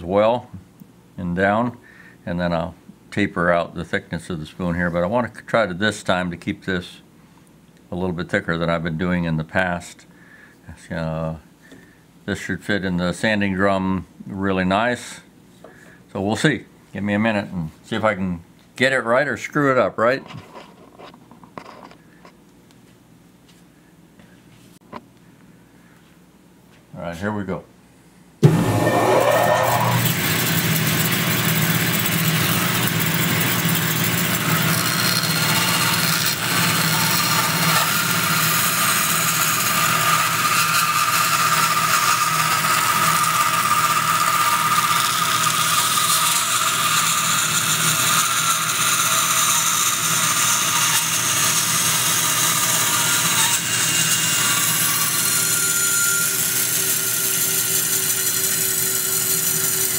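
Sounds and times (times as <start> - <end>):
bandsaw cutting wood: 28.4 - 59.9.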